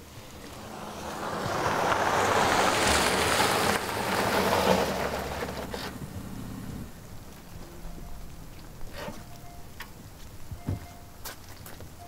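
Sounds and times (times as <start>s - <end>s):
tyres hissing on wet road: 0.0s - 9.3s
low engine hum: 0.0s - 12.0s.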